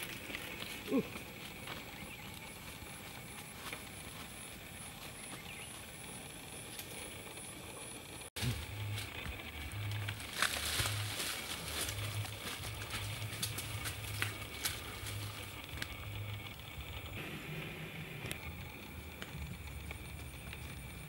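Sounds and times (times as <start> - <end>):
footsteps through dry leaves: 8.4 - 15.5
twigs snapping: 8.4 - 15.9.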